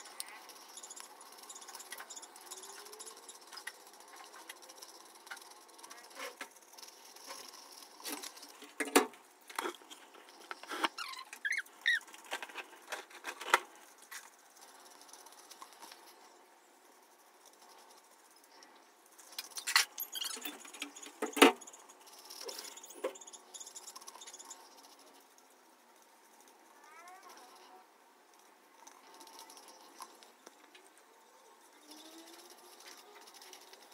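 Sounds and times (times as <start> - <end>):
scratchy rubbing and tapping: 0.0 - 16.3
brief squeaks: 19.6 - 21.6.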